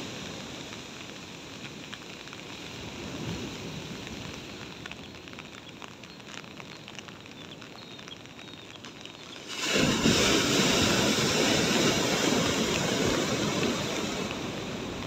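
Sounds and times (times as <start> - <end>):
steady rain: 0.0 - 15.0
surf washing: 8.8 - 15.0.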